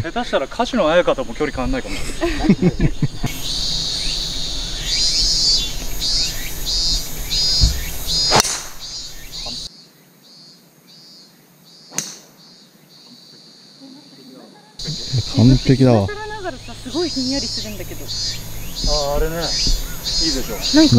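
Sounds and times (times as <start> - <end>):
wind rumble: 0.0 - 9.7, 14.8 - 20.9
insects chirping in pulses: 0.0 - 20.9
golf ball struck crack: 7.4 - 9.5, 11.9 - 12.4.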